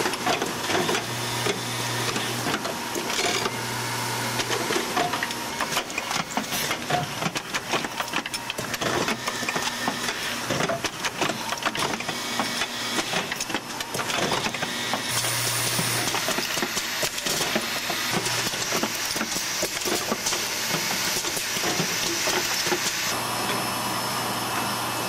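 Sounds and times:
assembly machinery clicking and clattering: 4.4 - 23.0.

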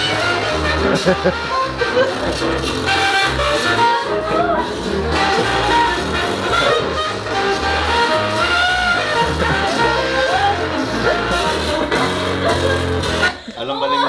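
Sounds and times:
steady bass line: 0.0 - 13.4
song with singing voice: 3.8 - 14.0.

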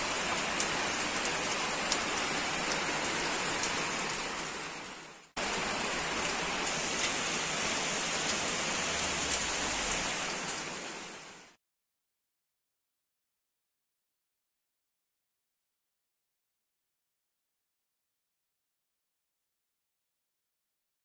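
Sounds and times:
raindrops ticking on surfaces: 0.0 - 11.6
steady rain falling: 0.0 - 11.6.

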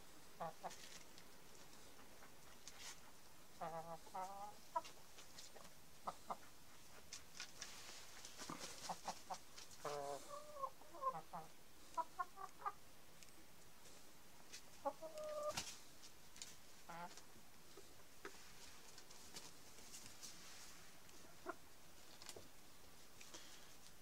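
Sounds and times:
chickens clucking: 0.4 - 12.8, 14.5 - 15.8, 16.8 - 20.3, 21.0 - 22.5.

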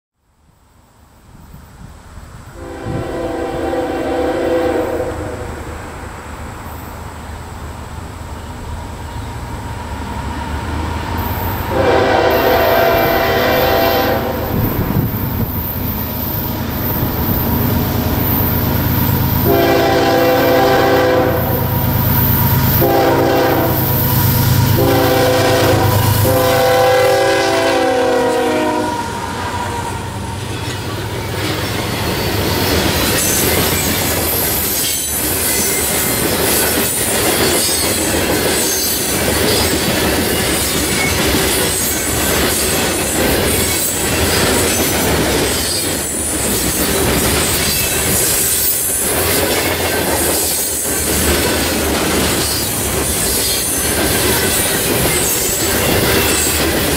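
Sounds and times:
locomotive horn blasts: 2.6 - 5.7, 11.7 - 14.7, 19.4 - 21.8, 22.6 - 30.0
deep locomotive rumble: 2.6 - 34.1
train wheels clattering on rails: 30.2 - 56.9.

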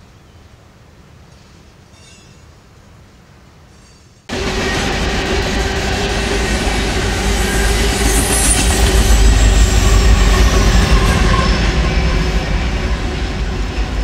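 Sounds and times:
train wheels rumbling on rails: 3.8 - 14.0
diesel locomotives passing: 4.3 - 14.0
high-pitched flange squeal: 4.6 - 13.3.

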